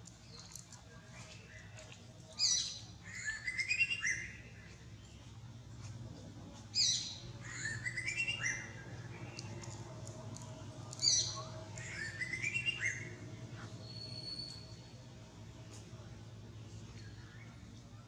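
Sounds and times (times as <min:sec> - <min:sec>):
low steady hum: 0:00.0 - 0:18.0
bird singing: 0:00.1 - 0:05.4, 0:06.6 - 0:15.0.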